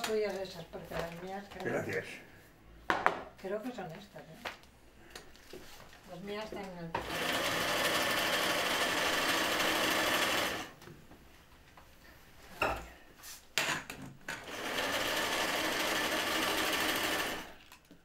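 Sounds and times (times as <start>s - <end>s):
small machine running: 7.0s - 10.7s, 14.5s - 17.6s.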